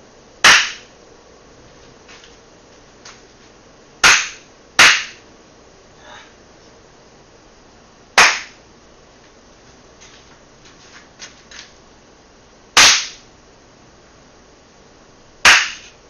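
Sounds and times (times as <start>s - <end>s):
hand claps: 8.2s - 8.6s.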